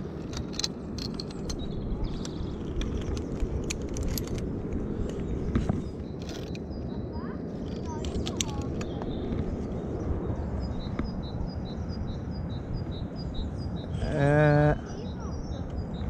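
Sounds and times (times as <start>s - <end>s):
metal carabiners clicking: 0.0s - 5.2s, 6.2s - 6.6s, 7.6s - 9.0s
outdoor rustle: 0.0s - 10.2s
bird chirping: 5.0s - 16.0s
wavering voice: 13.9s - 15.0s.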